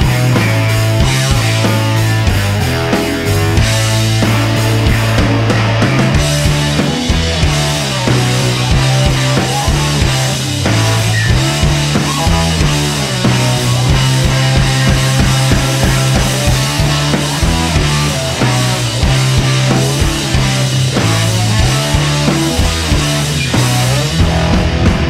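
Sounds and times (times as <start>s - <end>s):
rock music: 0.0s - 25.0s.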